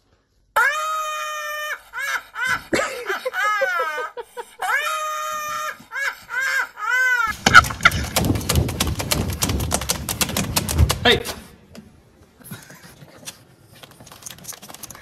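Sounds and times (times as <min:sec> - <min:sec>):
woman's shrieking laughter: 0:00.6 - 0:07.4
rapid clattering: 0:07.3 - 0:11.6.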